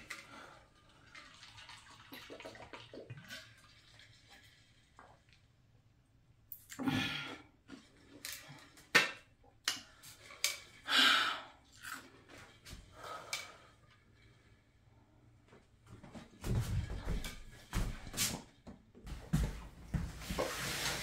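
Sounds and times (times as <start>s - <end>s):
woman breathing heavily: 9.9s - 11.6s, 12.8s - 14.3s.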